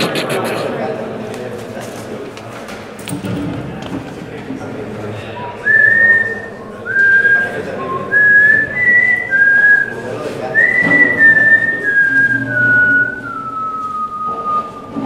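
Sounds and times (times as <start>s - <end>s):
person whistling a slow tune: 5.6s - 10.0s, 10.6s - 15.0s.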